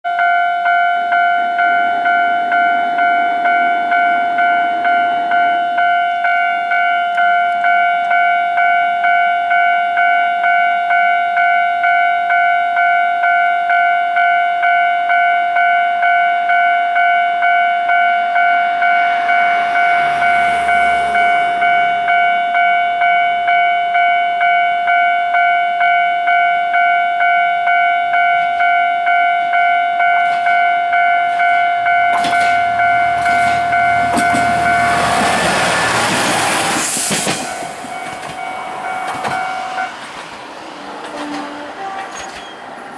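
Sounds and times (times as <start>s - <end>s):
level-crossing warning bell: 0.1s - 42.9s
low rumble: 18.7s - 22.7s, 31.8s - 36.8s.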